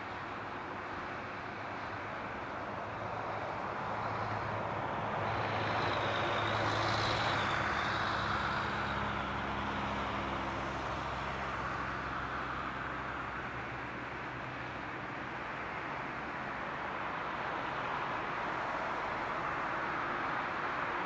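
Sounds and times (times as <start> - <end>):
jet engines passing by: 0.0 - 21.0.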